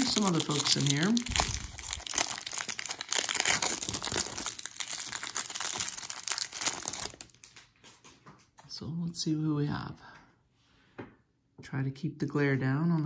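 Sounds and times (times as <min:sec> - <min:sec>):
plastic wrapping crinkling: 0:00.0 - 0:08.5.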